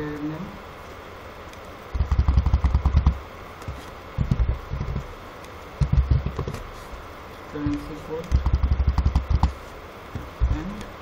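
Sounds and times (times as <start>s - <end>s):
keyboard typing: 2.0s - 5.1s, 5.8s - 6.6s, 7.7s - 9.6s.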